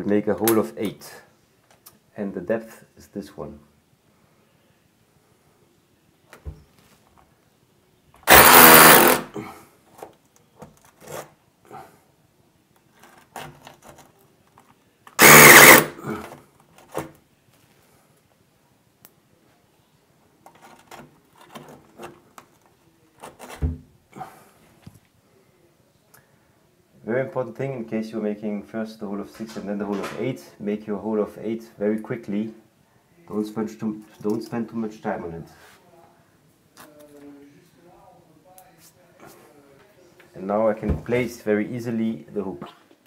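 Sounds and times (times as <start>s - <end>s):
hammer drill drilling into brick: 8.2s - 9.3s, 15.2s - 16.0s.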